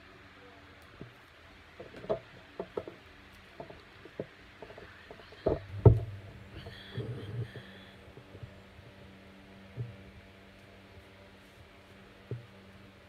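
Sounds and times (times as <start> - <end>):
heavy thumps: 3.6 - 8.6.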